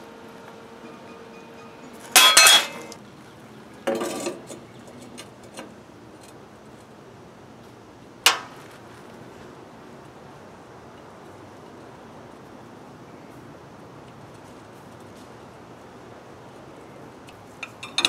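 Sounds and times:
steel clanking: 0.8 - 3.0, 17.6 - 18.0
metal clinks: 1.6 - 3.0, 17.6 - 18.0.

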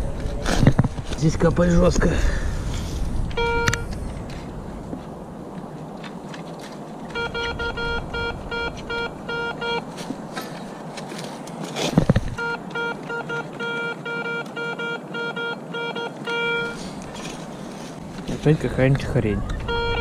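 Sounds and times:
metal detector beeping: 3.3 - 4.0, 7.1 - 9.9, 12.4 - 16.9, 19.4 - 20.0.

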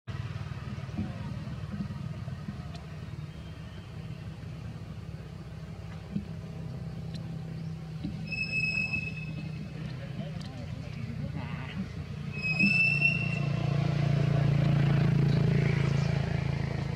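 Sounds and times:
motor rumbling: 0.1 - 16.9
high thin squeak: 8.2 - 9.7, 12.3 - 13.5.

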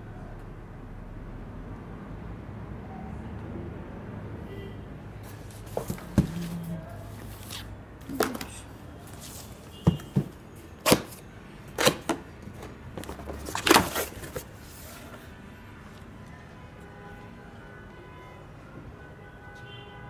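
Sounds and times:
cardboard knocks and scrapes: 5.3 - 8.6, 9.2 - 11.2, 11.8 - 15.2.

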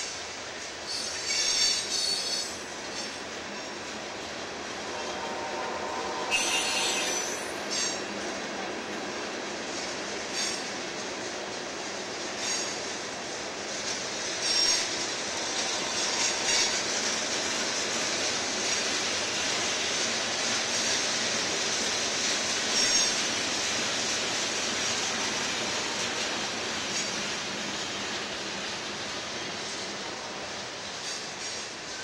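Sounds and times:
steel wheels on rails: 0.0 - 32.0
high wheel squeals: 0.9 - 3.2, 5.0 - 8.1, 15.6 - 16.9, 22.7 - 23.2.

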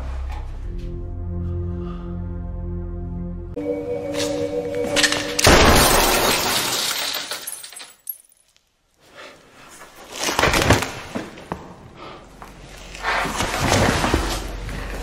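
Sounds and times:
glass pane shattering: 5.0 - 8.5.

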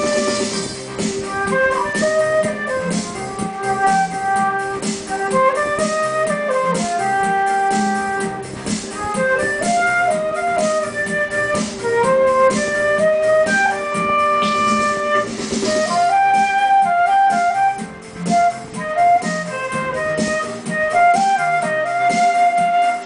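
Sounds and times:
electronic keyboard accompaniment: 0.0 - 23.0
flute melody: 0.0 - 23.0.

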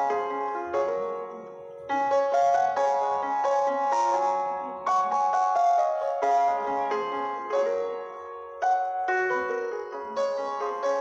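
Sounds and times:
piano-like keyboard music: 0.0 - 11.0.

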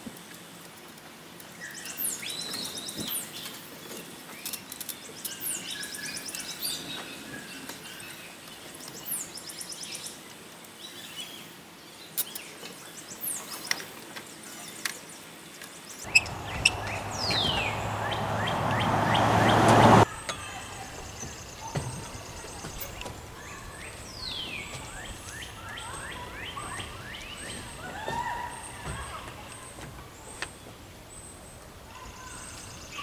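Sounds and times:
songbirds chirping: 0.3 - 33.0
rushing noise with low hum: 16.1 - 20.1.

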